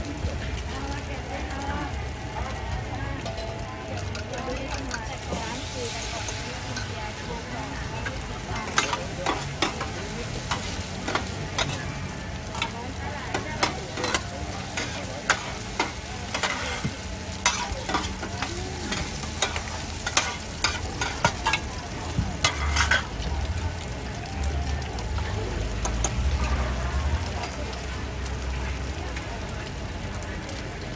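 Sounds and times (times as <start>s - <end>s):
pancakes sizzling in oil: 0.0s - 30.9s
metal spatulas scraping pan: 13.3s - 21.7s, 22.4s - 23.1s.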